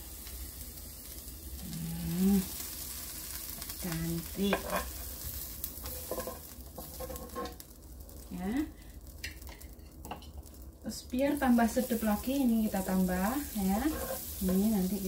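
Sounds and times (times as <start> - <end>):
sandwich sizzling in frying pan: 0.0 - 15.0
spatula scraping pan: 4.4 - 7.6, 13.5 - 15.0.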